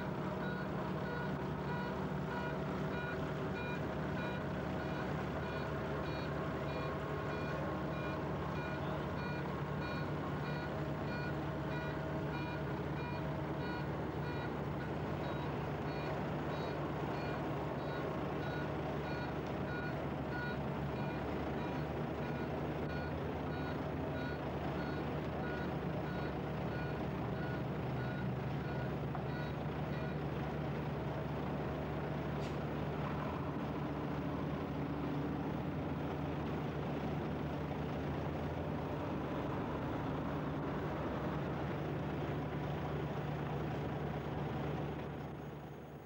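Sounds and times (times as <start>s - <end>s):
truck diesel engine running: 0.0s - 46.0s
reversing alarm beeps: 0.4s - 14.5s.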